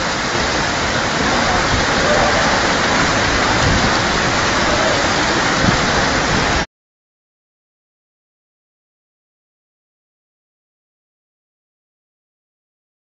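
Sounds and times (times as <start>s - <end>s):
floodwater rushing: 0.0s - 6.7s.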